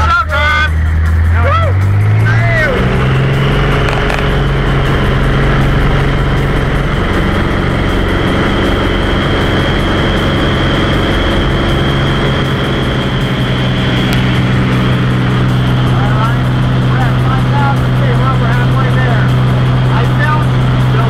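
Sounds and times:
steady high tone: 0.0 - 20.2
light aircraft engine running: 0.0 - 21.0
rushing air: 0.7 - 17.0.

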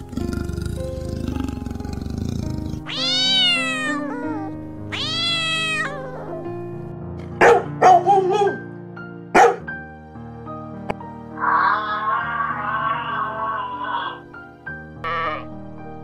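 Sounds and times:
background music: 0.0 - 16.0
cat meowing: 2.9 - 6.4, 11.4 - 14.3.

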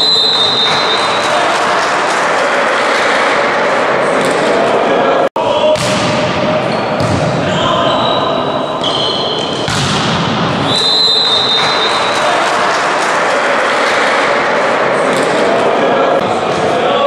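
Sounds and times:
high whistle: 0.0 - 1.2, 7.5 - 9.5, 10.6 - 12.2
volleyball hits echoing: 0.0 - 4.9, 5.5 - 7.9, 8.8 - 16.8
players shouting: 0.0 - 9.4, 10.6 - 17.0.

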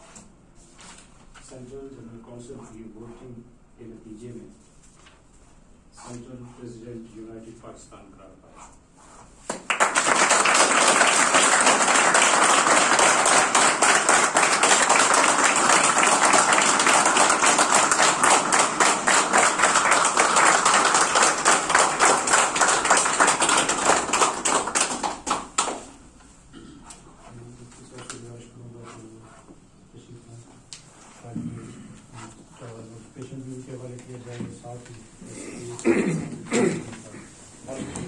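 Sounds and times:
audience applauding: 9.5 - 25.9.

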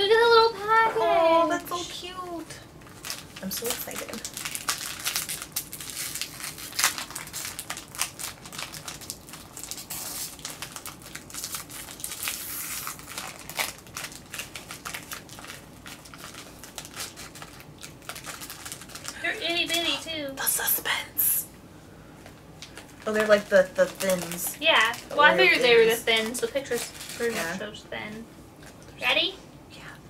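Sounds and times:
snack wrapper crinkling and tearing: 2.8 - 19.9, 22.6 - 25.3, 26.1 - 27.5.

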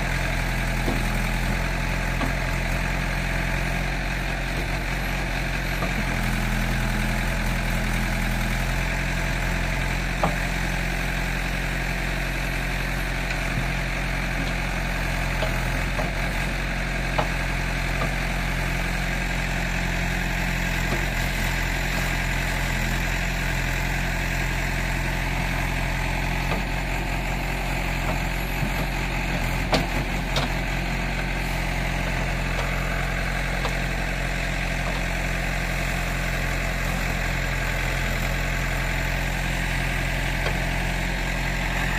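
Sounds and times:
diesel engine running: 0.0 - 41.9.

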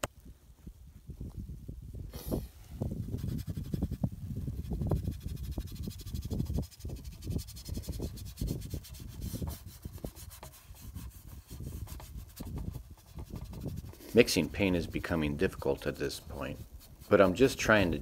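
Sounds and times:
wind rumble on microphone: 0.0 - 17.1
bristle paintbrush scrubbing: 3.0 - 14.8, 16.0 - 17.7.

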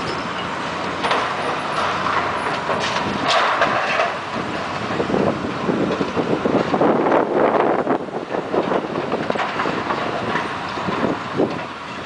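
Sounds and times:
excavator engine noise: 0.0 - 12.0
debris crunching and clattering: 1.0 - 5.0.

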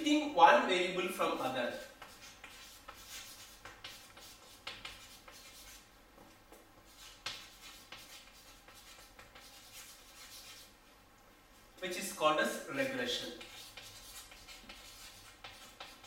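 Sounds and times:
chalk scratching on chalkboard: 1.4 - 5.9, 6.9 - 10.8, 13.1 - 16.0
chalk taps: 1.8 - 10.7, 13.4 - 16.0.

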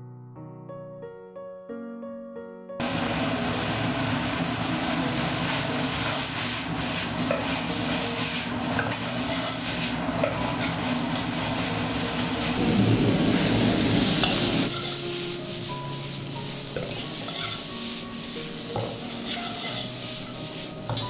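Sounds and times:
gas burner roaring: 2.8 - 21.0
oil sizzling: 2.8 - 21.0
spatula scraping a pan: 6.0 - 12.6, 14.2 - 21.0.

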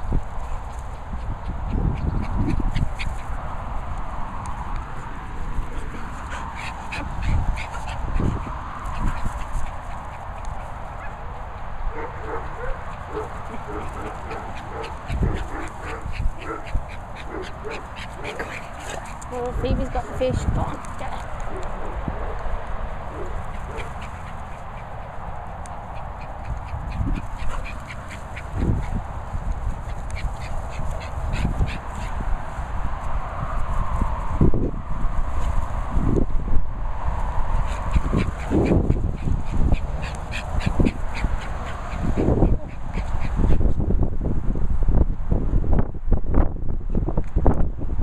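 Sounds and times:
dog yapping: 12.0 - 19.2.

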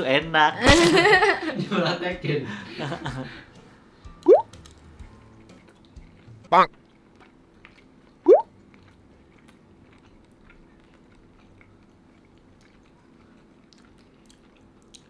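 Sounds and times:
person chewing: 4.4 - 15.0.

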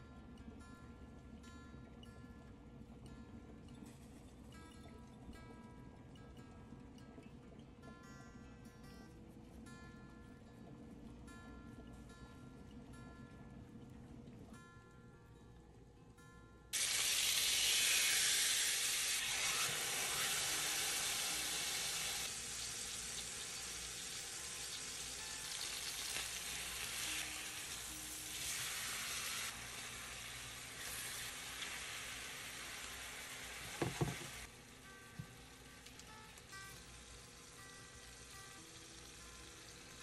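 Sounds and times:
fish sizzling in hot oil: 16.8 - 34.5
knocks: 33.7 - 34.3.

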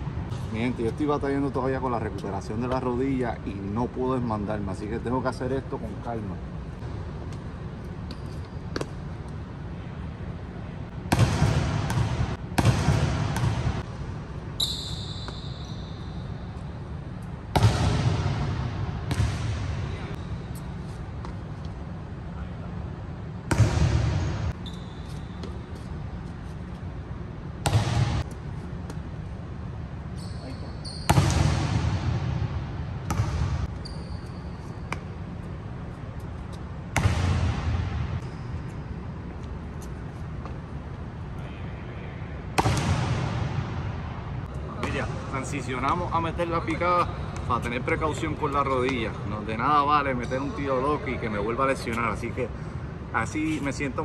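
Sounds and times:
basketball bouncing on hardwood court: 11.1 - 13.8, 17.5 - 19.9, 27.6 - 28.2, 31.0 - 33.7, 37.0 - 38.2.

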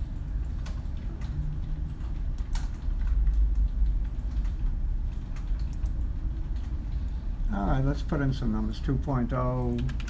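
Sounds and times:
computer clicks: 0.0 - 7.1.

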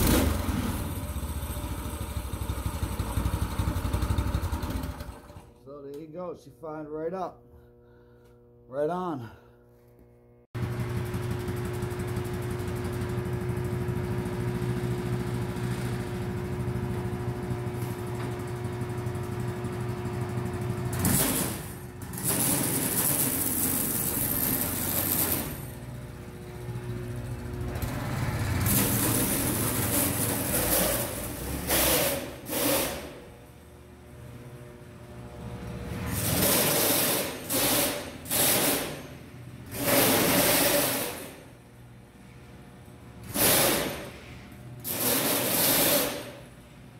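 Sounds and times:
go-kart engine running: 0.0 - 5.5, 10.6 - 32.7.

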